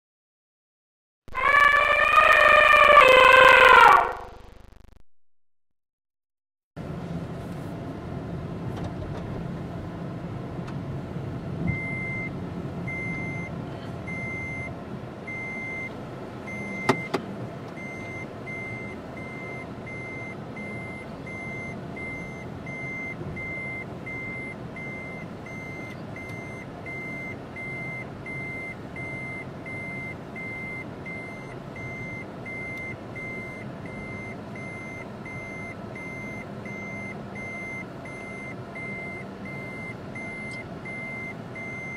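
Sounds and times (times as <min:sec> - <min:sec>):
car engine and road noise: 0:06.8 - 0:41.9
electronic warning beep: 0:14.1 - 0:14.7, 0:17.8 - 0:41.9.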